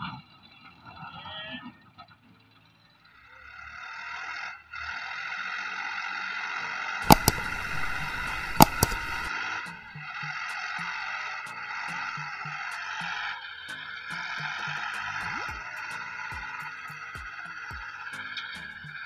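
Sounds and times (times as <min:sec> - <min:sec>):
sharp click sound effects: 0:07.0 - 0:09.3
background music: 0:07.0 - 0:19.0.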